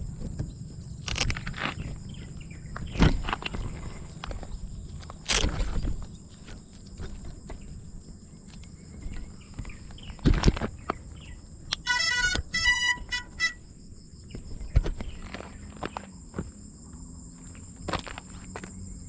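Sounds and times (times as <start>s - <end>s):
high insect trill: 0.0s - 19.0s
knocks and scrapes on gravel: 0.2s - 11.3s, 14.3s - 16.5s
short electronic beeps: 11.8s - 13.6s.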